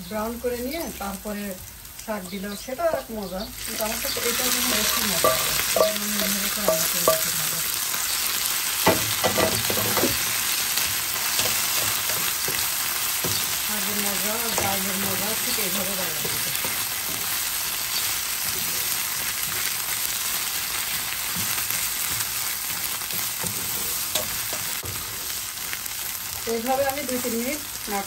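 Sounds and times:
greens sizzling in hot oil: 0:00.0 - 0:28.0
spatula tapping a pan: 0:04.2 - 0:07.5, 0:11.3 - 0:13.6.

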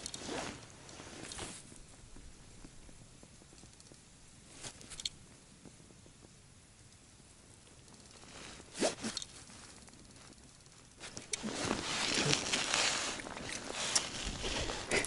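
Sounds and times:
rustling of winter clothing: 0:00.0 - 0:03.5, 0:04.4 - 0:05.0, 0:08.1 - 0:15.0
light clicks: 0:04.8 - 0:05.2.

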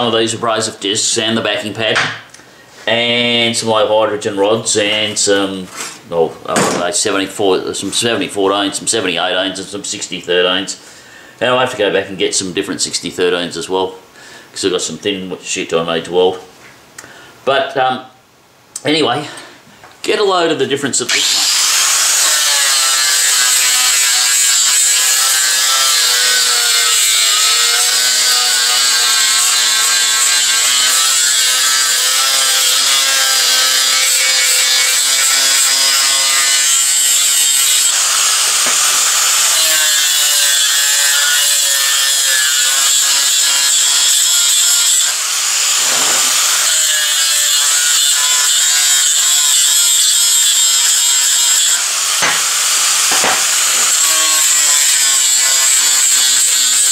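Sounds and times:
angle grinder motor whine: 0:21.1 - 0:49.2.

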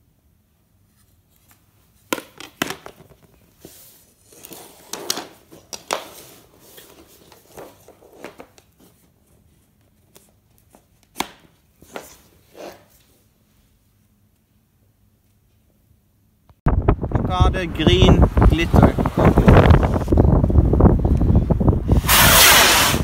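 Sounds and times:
rustling and scraping: 0:00.8 - 0:13.7.

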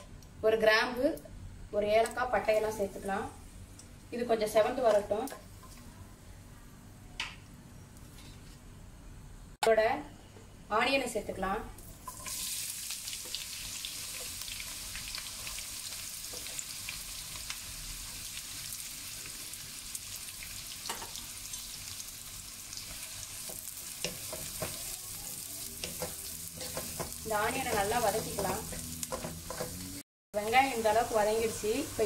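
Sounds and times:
onions sizzling in oil: 0:11.8 - 0:32.0.

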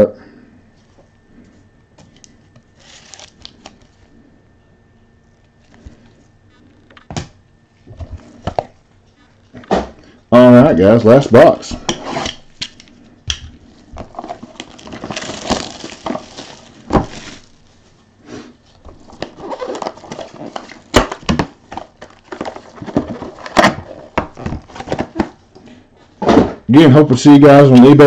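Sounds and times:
plastic wrap and cardboard crinkling: 0:02.5 - 0:04.1, 0:13.6 - 0:18.0, 0:18.6 - 0:25.5.

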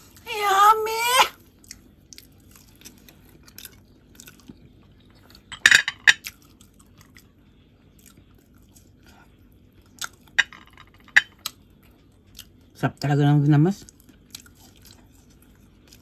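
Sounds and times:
chewing: 0:01.5 - 0:05.5, 0:06.2 - 0:10.4, 0:11.3 - 0:12.7, 0:13.8 - 0:16.0.

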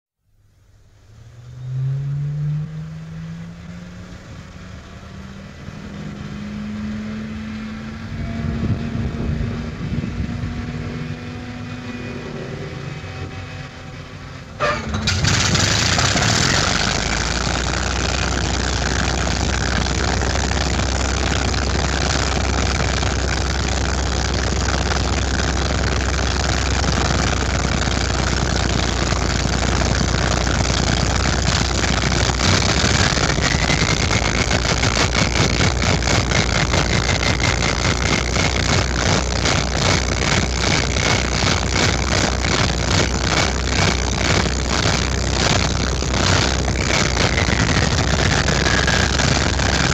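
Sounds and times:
aircraft engine running: 0:07.5 - 0:49.9
starter winding up whine: 0:11.8 - 0:49.9.

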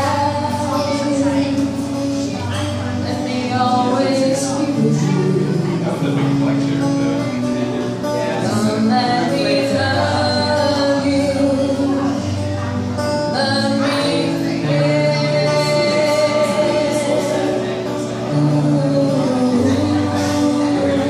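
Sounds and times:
song with singing: 0:03.0 - 0:06.4, 0:13.2 - 0:21.0.

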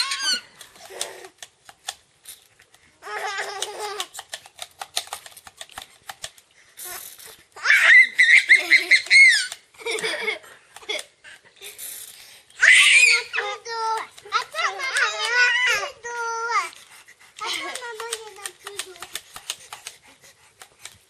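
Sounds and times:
baby laughing: 0:03.0 - 0:04.3, 0:07.6 - 0:11.9
high-pitched squealing laugh: 0:07.6 - 0:11.9.

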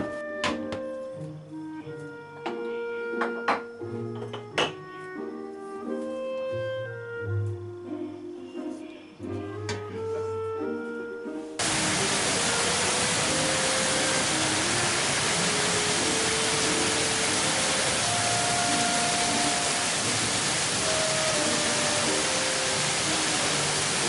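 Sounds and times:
soft background music: 0:00.0 - 0:24.0
heavy rain on paving: 0:11.6 - 0:24.0.

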